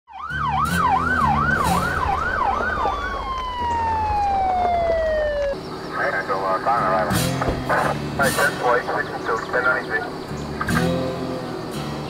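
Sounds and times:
police siren yelping: 0.1s - 6.9s
vehicle engines rumbling: 0.1s - 12.0s.

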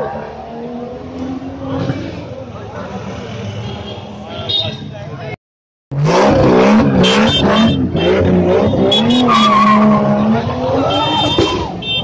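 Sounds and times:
car engine revving high: 5.9s - 11.6s.

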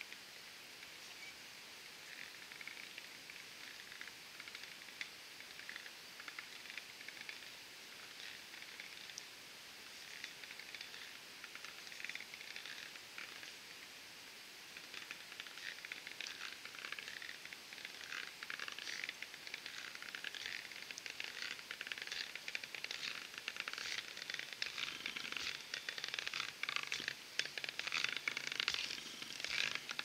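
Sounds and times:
stilts crunching through snow: 15.5s - 30.0s.

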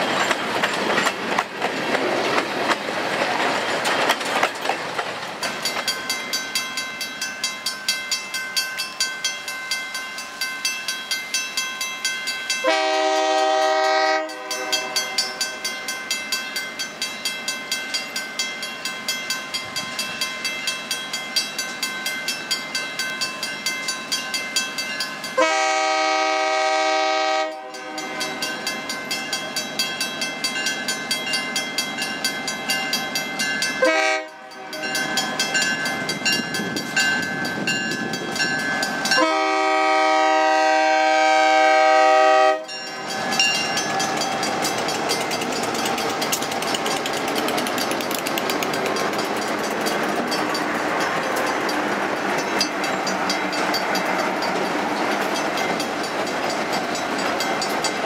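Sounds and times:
railroad crossing bell ringing: 0.0s - 2.1s, 5.2s - 58.0s
locomotive chime horn: 12.6s - 15.7s, 25.3s - 28.7s, 33.7s - 35.8s, 39.0s - 44.5s.

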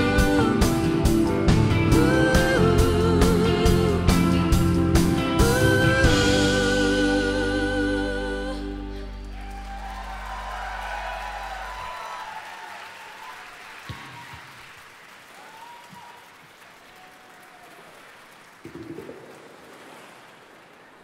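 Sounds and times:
audience applauding and cheering: 9.2s - 21.0s.

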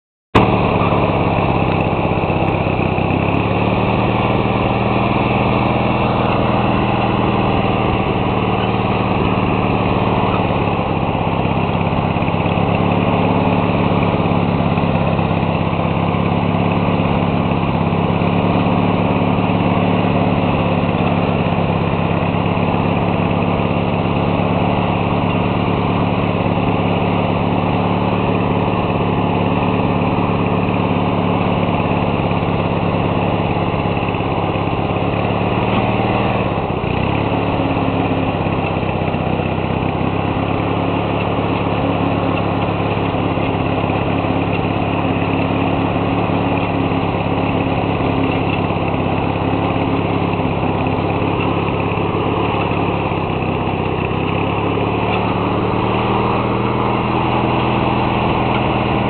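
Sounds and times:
small tractor engine running: 0.4s - 59.0s.

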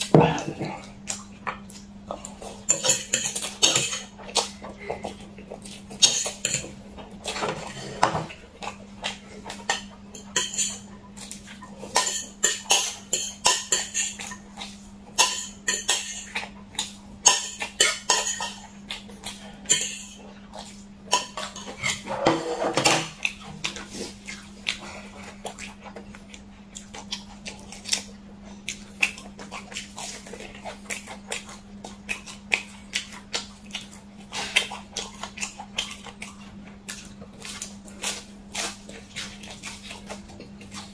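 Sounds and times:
steady low hum: 0.0s - 40.9s
fork scraping ceramic plate: 21.2s - 23.2s
wet chewing and mouth smacks: 23.2s - 40.9s.

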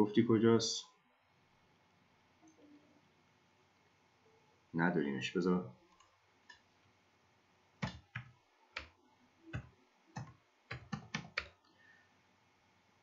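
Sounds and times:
faint keyboard typing: 5.9s - 6.9s, 7.8s - 11.7s.

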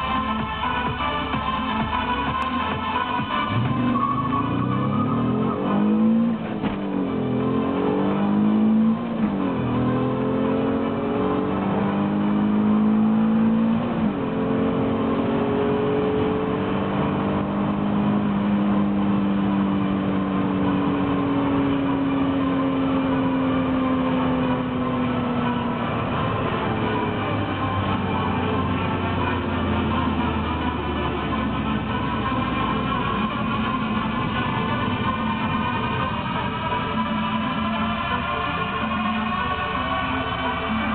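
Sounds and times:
car engine at full throttle: 0.0s - 40.9s.

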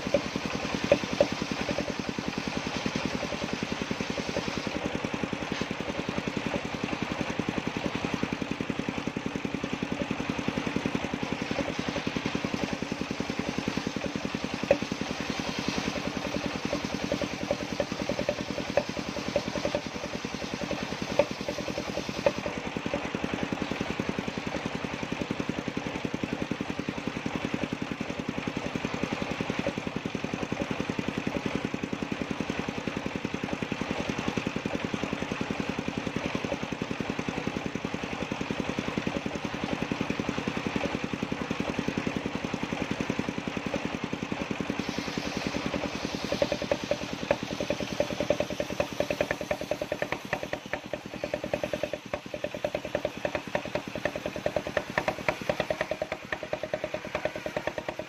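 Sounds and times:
sawmill engine droning: 0.0s - 58.0s
high hiss: 44.8s - 52.0s.

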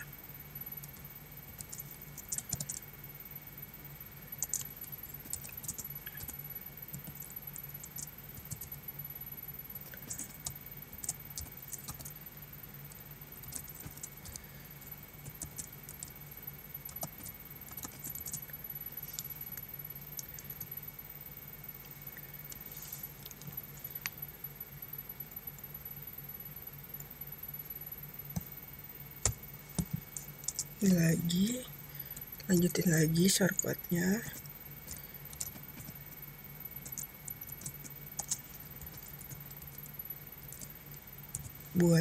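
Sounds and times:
steady low hum: 0.0s - 42.0s
keyboard keystroke clicks: 0.8s - 2.8s.

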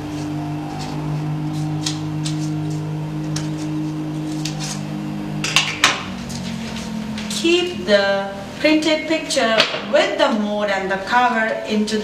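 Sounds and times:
low hum of held tones: 0.0s - 12.0s
scissors snipping paper: 0.1s - 4.8s.

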